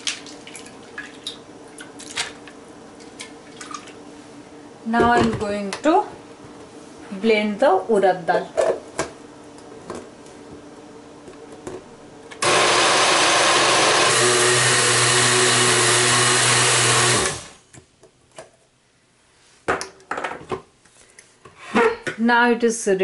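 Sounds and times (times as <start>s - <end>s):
blender motor grinding: 12.4s - 17.6s.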